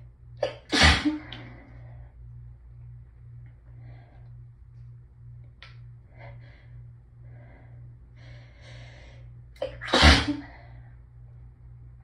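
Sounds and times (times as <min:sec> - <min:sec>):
person sneezing loudly: 0:00.4 - 0:01.2, 0:09.6 - 0:10.4.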